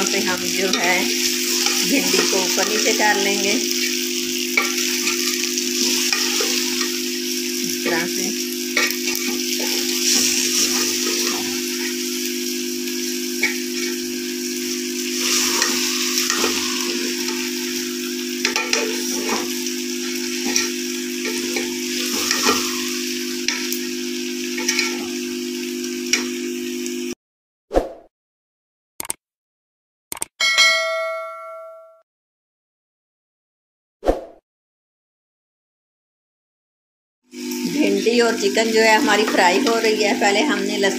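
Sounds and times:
food sizzling in oil: 0.0s - 27.2s, 37.3s - 40.9s
ladle stirring and scraping: 0.7s - 12.2s, 15.0s - 23.8s, 24.6s - 25.2s
short clicks: 29.0s - 29.2s, 30.1s - 30.3s.

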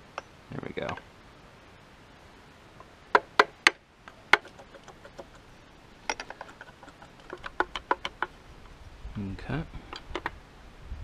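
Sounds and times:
tools clicking and tapping on metal: 6.1s - 8.3s, 9.9s - 10.3s.

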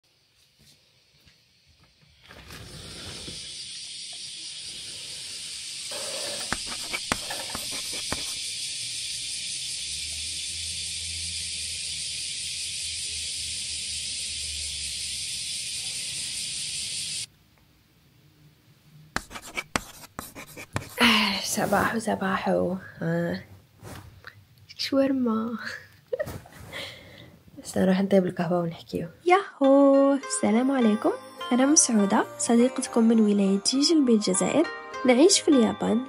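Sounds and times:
steady hiss: 0.1s - 17.3s.

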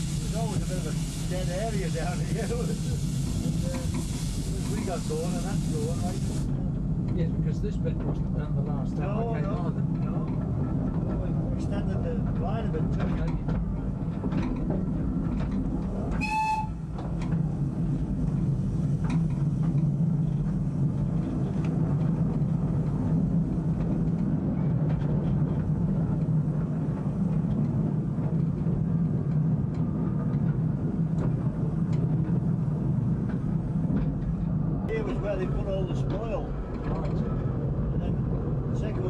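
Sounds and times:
small train rumbling on track: 0.0s - 39.0s
steam whistle blast: 16.2s - 16.8s.

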